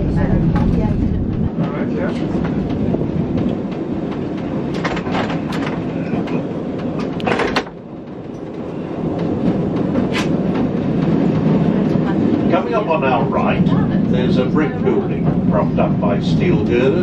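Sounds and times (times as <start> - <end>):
tram rumbling on rails: 0.0 - 17.0.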